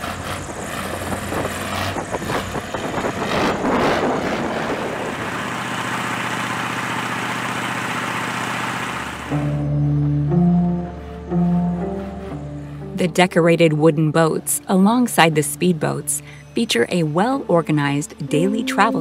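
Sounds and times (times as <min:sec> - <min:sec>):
water rushing along hull: 0:00.0 - 0:09.6
diesel boat engine running: 0:00.0 - 0:19.0.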